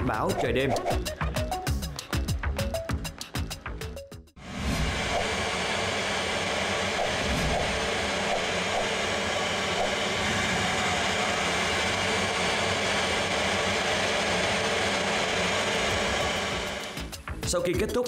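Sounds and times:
jet engine and airflow noise: 0:04.4 - 0:17.0.

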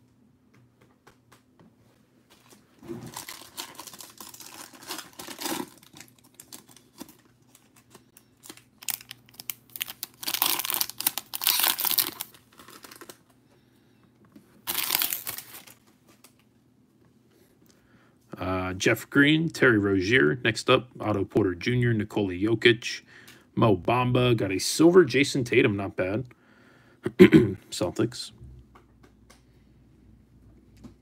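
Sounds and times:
foil wrapper tearing and crinkling: 0:03.1 - 0:13.2, 0:14.6 - 0:15.8.

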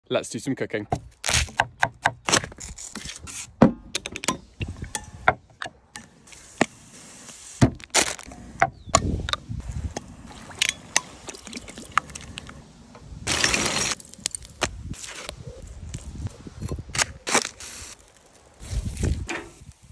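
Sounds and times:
steady hiss: 0:06.2 - 0:07.8, 0:17.3 - 0:19.9.

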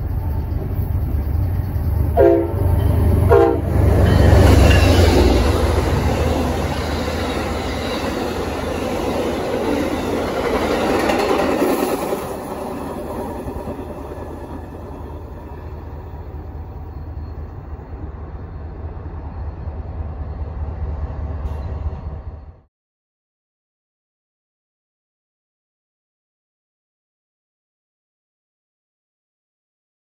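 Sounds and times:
train wheels clattering on rails: 0:00.0 - 0:17.6
diesel locomotives rumbling: 0:00.0 - 0:22.7.

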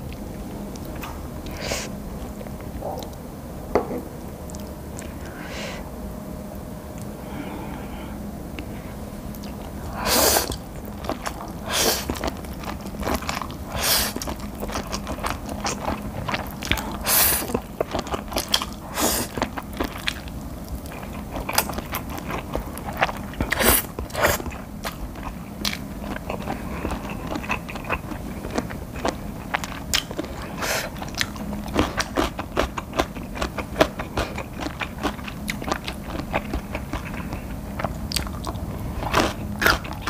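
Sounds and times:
wet chewing: 0:09.3 - 0:40.0
loud noodle slurps: 0:13.7 - 0:14.2.

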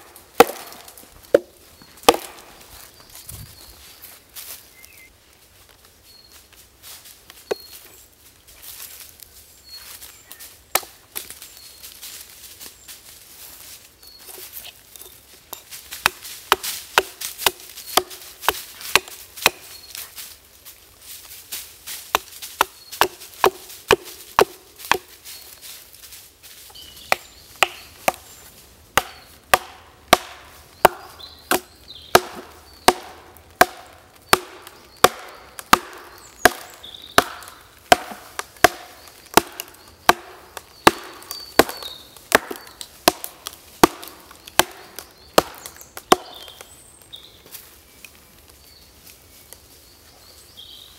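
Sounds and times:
axe chopping log: 0:00.0 - 0:02.6, 0:10.7 - 0:11.0, 0:16.0 - 0:19.7, 0:22.1 - 0:25.1, 0:27.1 - 0:28.2, 0:28.9 - 0:46.6.

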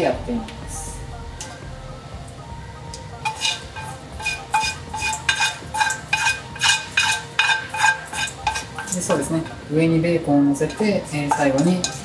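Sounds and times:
utensil scraping metal frying pan: 0:03.2 - 0:09.7, 0:10.6 - 0:12.0.

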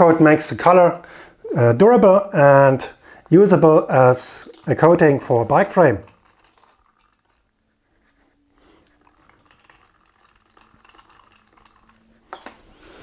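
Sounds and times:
liquid trickling and dripping: 0:03.4 - 0:07.6, 0:08.6 - 0:12.8.

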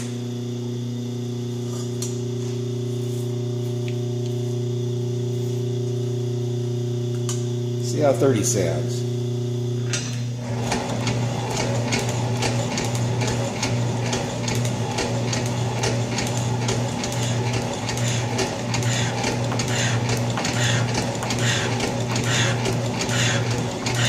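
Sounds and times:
motor hum: 0:00.0 - 0:24.0
metal shaper cutting: 0:17.0 - 0:24.0.

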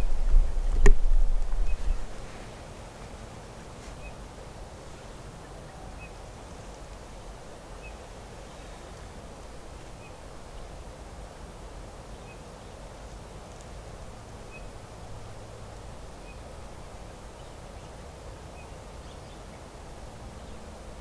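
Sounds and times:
outdoor background hiss: 0:00.0 - 0:21.0
faint high chirp: 0:01.6 - 0:02.0.

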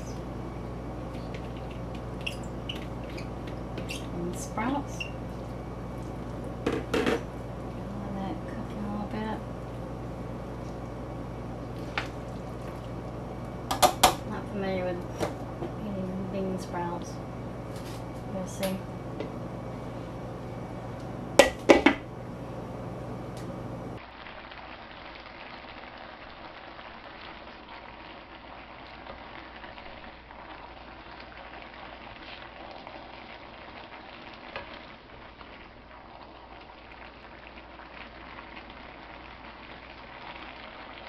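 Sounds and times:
food sizzling in a wok: 0:24.0 - 0:41.0.

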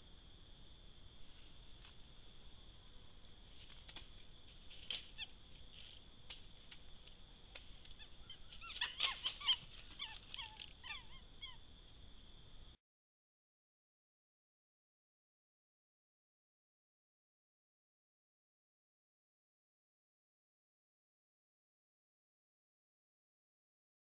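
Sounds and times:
dry leaves crackling: 0:03.5 - 0:11.0
monkey squeaky chirping calls: 0:08.0 - 0:11.6.

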